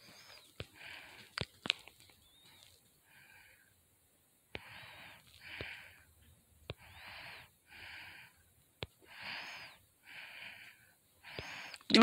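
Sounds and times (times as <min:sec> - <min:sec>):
person breathing quickly: 0:00.0 - 0:03.9, 0:04.5 - 0:11.9.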